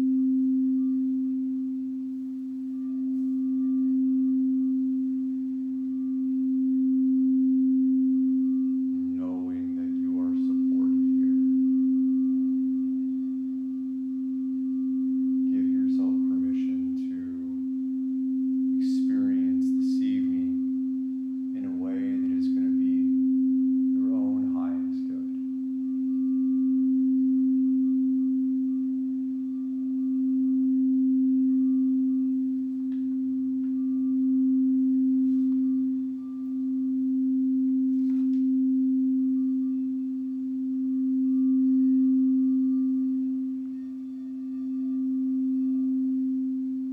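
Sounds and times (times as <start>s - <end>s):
singing bowl ringing: 0.0s - 46.9s
person speaking: 21.6s - 23.2s, 23.9s - 25.4s.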